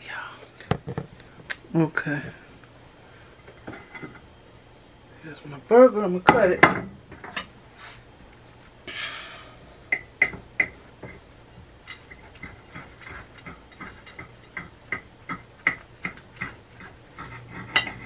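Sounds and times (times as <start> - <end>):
knife scraping plate: 15.7 - 18.0.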